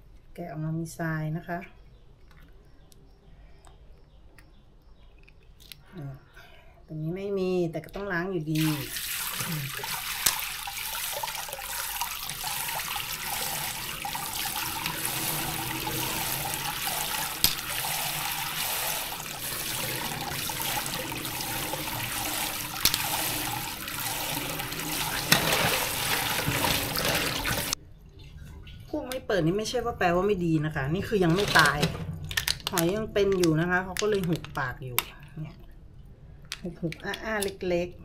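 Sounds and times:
tap water running into sink: 8.6 - 27.8.

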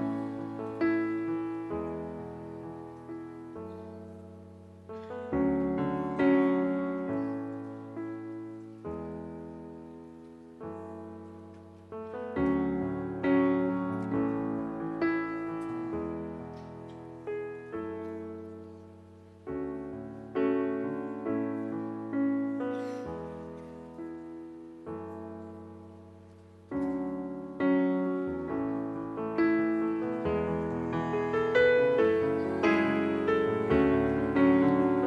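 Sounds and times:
slow solo piano chords: 0.0 - 35.0.

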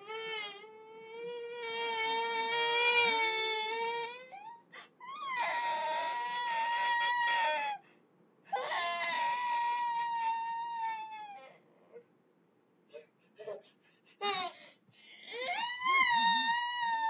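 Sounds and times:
baby crying: 0.0 - 7.8, 8.5 - 11.6, 15.2 - 17.0.

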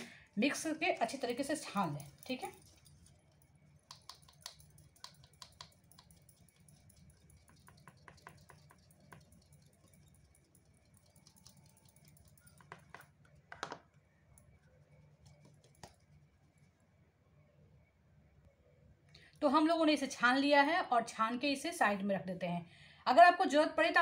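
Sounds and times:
flour sieve tapping: 3.8 - 13.8.

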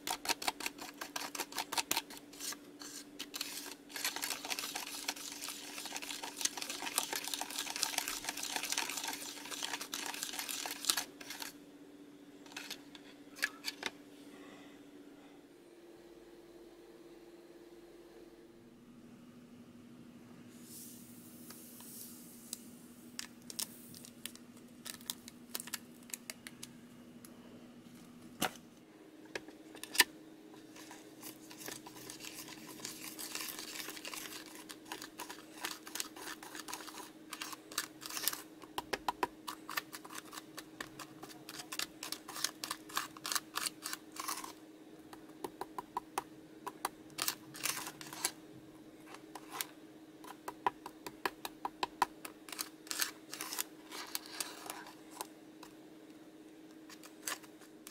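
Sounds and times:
sticky scraping clicks: 0.0 - 11.5, 30.8 - 44.6
plastic spoons stirring candy paste: 0.0 - 11.6, 12.5 - 13.9, 30.6 - 48.4, 49.0 - 55.8, 56.7 - 57.9
powder pouring from sachet: 2.9 - 11.5, 30.8 - 38.5.

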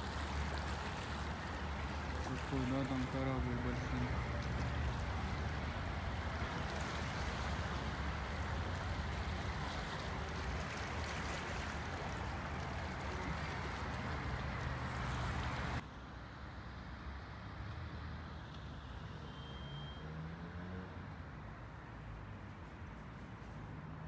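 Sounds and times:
sea waves washing on rocks: 0.0 - 15.8.

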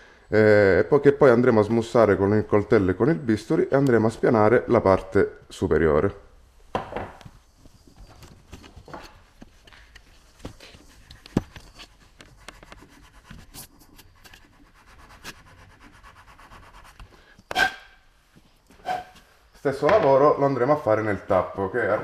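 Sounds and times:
blade scraping cane: 17.5 - 18.0, 18.8 - 19.2.

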